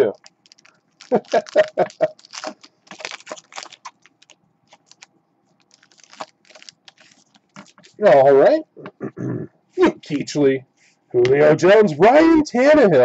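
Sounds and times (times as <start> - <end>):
foil wrapper crinkling: 0.0 - 8.0.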